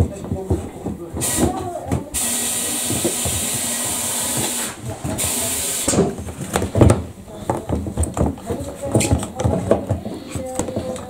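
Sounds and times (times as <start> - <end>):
pressurised spray hissing: 2.2 - 6.0
clicks and knocks of handling: 5.9 - 11.0.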